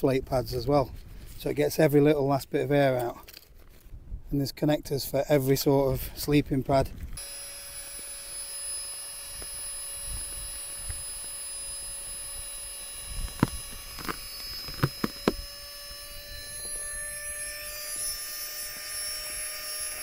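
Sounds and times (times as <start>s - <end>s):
air pump whining: 7.2s - 20.0s.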